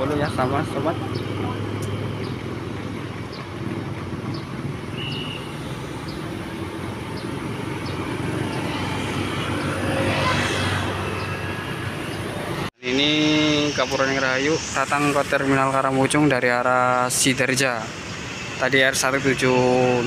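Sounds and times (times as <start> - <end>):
bus diesel engine droning: 0.0 - 9.6
rush of vehicle noise: 0.0 - 20.0.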